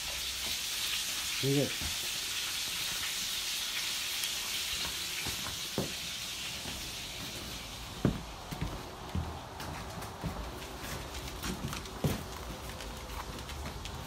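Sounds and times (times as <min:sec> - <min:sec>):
food sizzling in a frying pan: 0:00.0 - 0:07.9.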